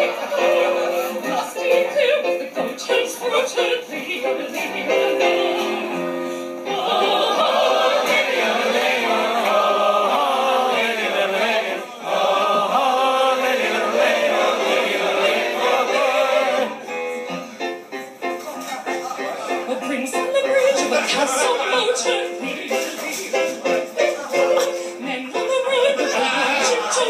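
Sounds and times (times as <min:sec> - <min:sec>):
audience singing along: 0:00.0 - 0:17.0, 0:20.6 - 0:23.9, 0:25.7 - 0:27.0.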